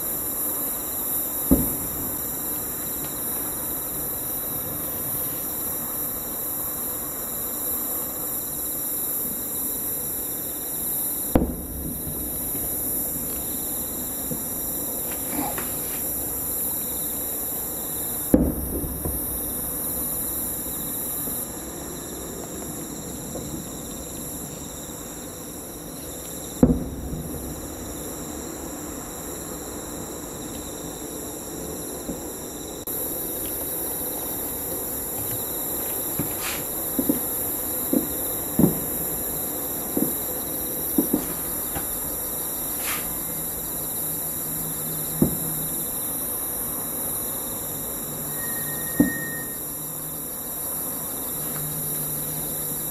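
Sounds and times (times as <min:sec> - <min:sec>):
night insects chirring: 0:00.0 - 0:52.9
distant fireworks booms: 0:01.3 - 0:05.7, 0:11.3 - 0:17.3, 0:18.1 - 0:21.4, 0:22.5 - 0:23.8, 0:26.5 - 0:28.6, 0:32.0 - 0:43.6, 0:45.1 - 0:45.7
faint fireworks pops: 0:01.4 - 0:05.6, 0:11.3 - 0:17.0, 0:18.2 - 0:20.3, 0:22.5 - 0:24.7, 0:26.0 - 0:28.0, 0:32.0 - 0:43.3, 0:45.1 - 0:45.7, 0:48.8 - 0:49.6.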